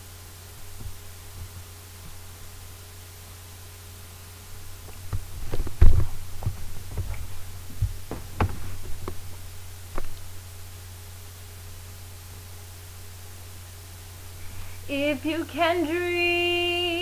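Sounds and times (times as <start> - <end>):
steady low hum: 0.0 - 17.0
irregular knocks and thumps: 4.8 - 10.4.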